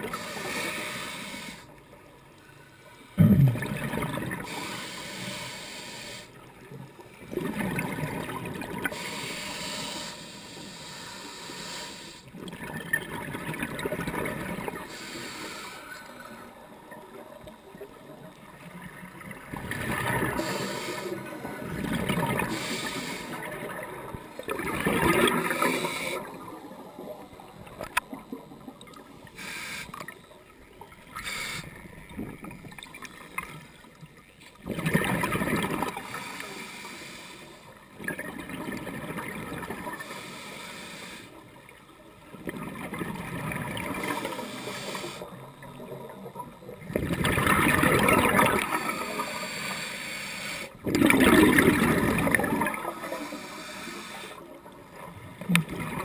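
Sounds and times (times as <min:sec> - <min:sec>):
regulator hissing and bubbling: 0:00.0 - 0:01.7, 0:07.6 - 0:17.1, 0:19.4 - 0:30.4, 0:31.0 - 0:33.7, 0:43.1 - 0:45.5, 0:46.9 - 0:54.8
exhaled bubbles bursting: 0:03.2 - 0:04.5, 0:07.3 - 0:08.8, 0:23.5 - 0:25.6, 0:34.6 - 0:36.0, 0:46.9 - 0:48.8, 0:50.8 - 0:52.9.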